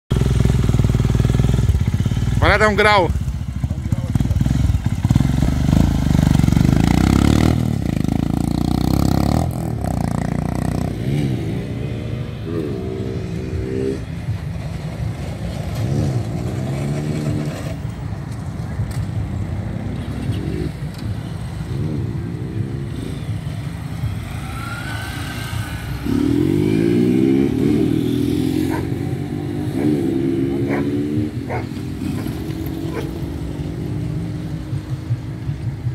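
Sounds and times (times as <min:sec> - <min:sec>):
motorcycle pulling away: 0:00.1 - 0:18.5, 0:19.5 - 0:35.9
motorcycles revving on track: 0:00.1 - 0:35.9.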